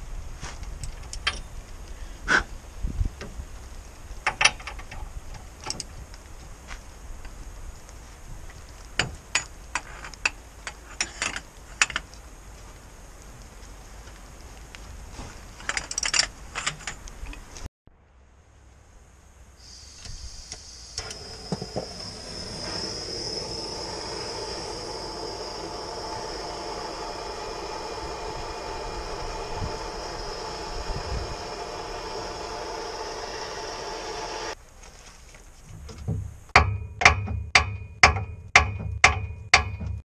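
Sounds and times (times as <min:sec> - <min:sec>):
gas torch hissing: 0:19.6 - 0:34.6
hammer striking steel: 0:36.6 - 0:40.0.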